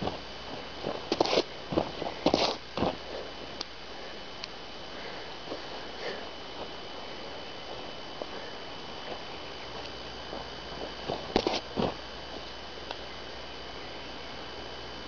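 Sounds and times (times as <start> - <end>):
small ticks: 11.1 - 13.1.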